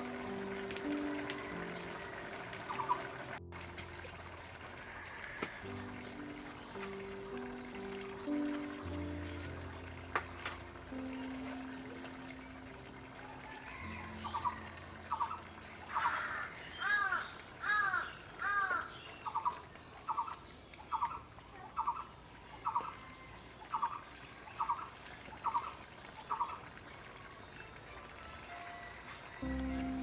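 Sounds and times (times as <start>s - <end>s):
bird calling: 0.0s - 3.4s, 13.4s - 23.0s.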